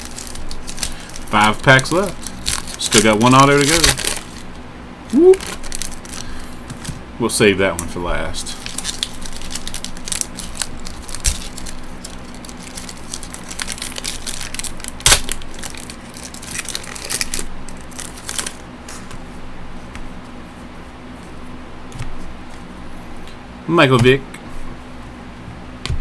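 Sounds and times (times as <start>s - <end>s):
foil wrapper crinkling: 0.0s - 4.6s, 5.2s - 7.0s, 8.4s - 19.1s.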